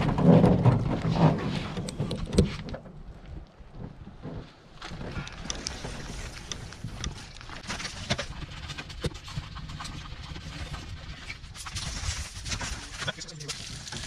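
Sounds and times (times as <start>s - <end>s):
sharp clicks and knocks: 0.0s - 3.0s.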